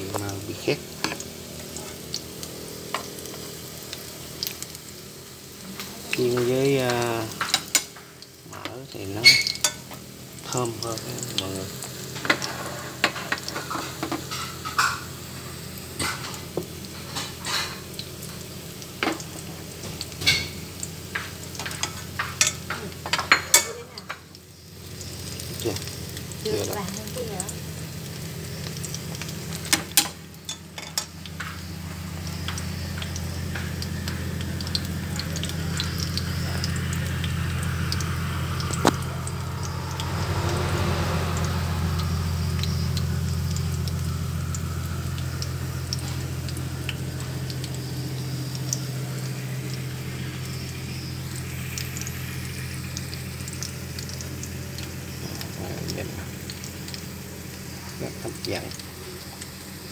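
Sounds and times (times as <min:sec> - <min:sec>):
food sizzling in a pan: 0:00.0 - 0:59.9
steady low hum: 0:24.1 - 0:59.9.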